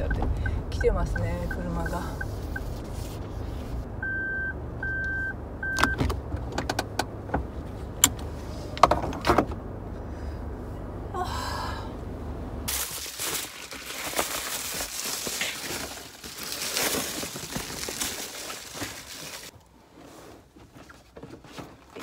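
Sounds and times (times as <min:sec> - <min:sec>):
car engine idling: 0:00.0 - 0:12.7
short car beeps: 0:04.0 - 0:06.1.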